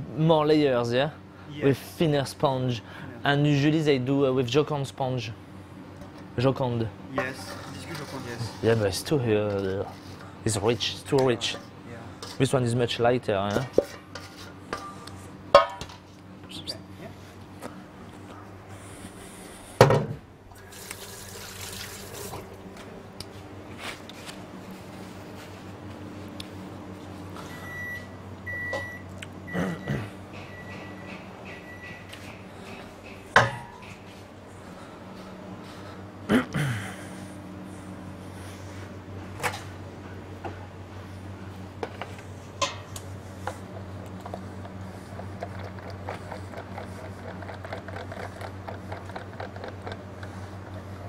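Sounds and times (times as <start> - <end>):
steady kitchen hum: 0.0 - 51.0
palette knife scraping buttercream: 43.8 - 50.7.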